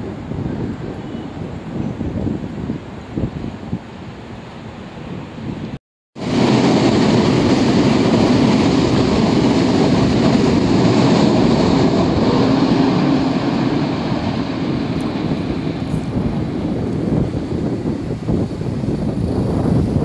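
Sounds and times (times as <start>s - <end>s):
train wheels rumbling on rails: 6.2s - 20.0s.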